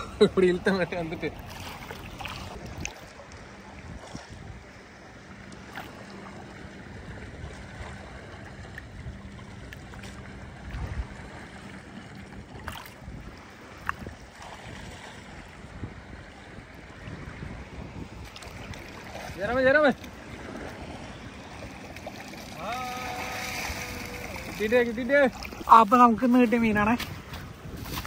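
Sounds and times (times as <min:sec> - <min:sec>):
wind buffeting microphone: 0:00.0 - 0:05.1, 0:06.4 - 0:28.0
water lapping: 0:00.0 - 0:28.0
small splashes: 0:01.2 - 0:04.4, 0:07.4 - 0:15.4, 0:18.2 - 0:28.0.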